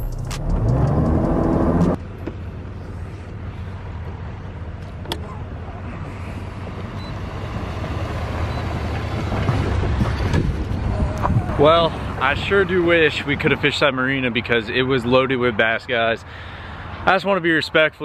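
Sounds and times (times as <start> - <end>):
truck engine rumbling: 0.0 - 17.2.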